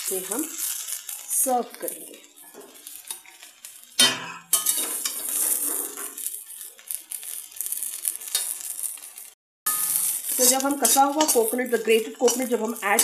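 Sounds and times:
sizzling hiss from hot pan: 0:00.0 - 0:13.0
sharp metal clank: 0:04.0 - 0:04.9, 0:09.7 - 0:10.0
metal spoon scraping pan: 0:04.0 - 0:06.4, 0:08.2 - 0:08.7, 0:09.7 - 0:13.0.

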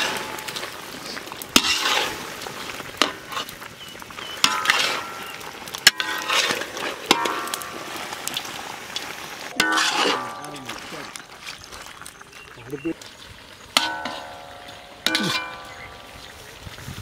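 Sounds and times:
meat sizzling: 0:00.0 - 0:17.0
metal ladle scraping iron pan: 0:01.5 - 0:03.6, 0:04.2 - 0:11.6, 0:13.8 - 0:16.5.

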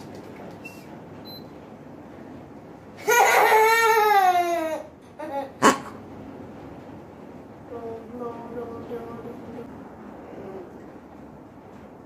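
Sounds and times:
child crying: 0:03.1 - 0:05.6.

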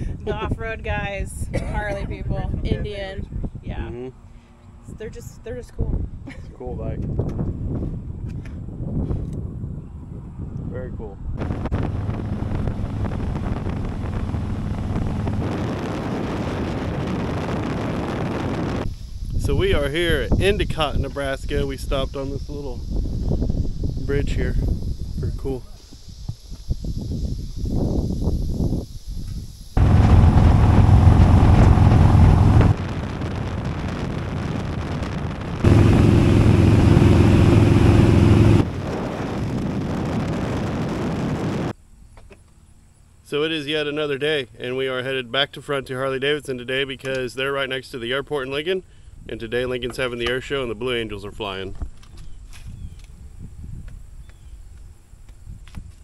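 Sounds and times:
wind rush on microphone: 0:00.0 - 0:41.8, 0:49.0 - 0:56.0
motorcycle engine hum: 0:11.4 - 0:17.4, 0:29.8 - 0:34.0, 0:34.9 - 0:39.2.

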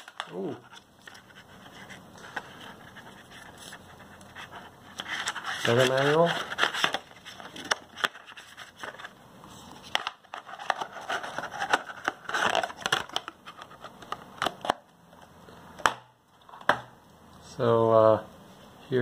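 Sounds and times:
plastic scraping and crackling: 0:00.0 - 0:09.2, 0:09.8 - 0:14.9.

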